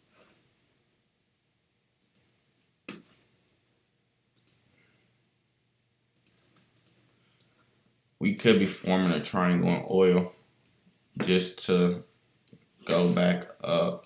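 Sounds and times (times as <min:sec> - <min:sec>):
computer mouse clicks: 0:02.0 - 0:02.3, 0:04.4 - 0:04.6, 0:06.2 - 0:07.6.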